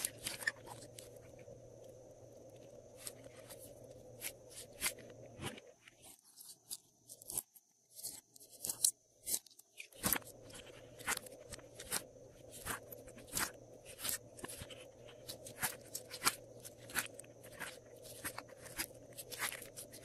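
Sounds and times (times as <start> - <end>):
faint steady hum: 0.0 - 20.0.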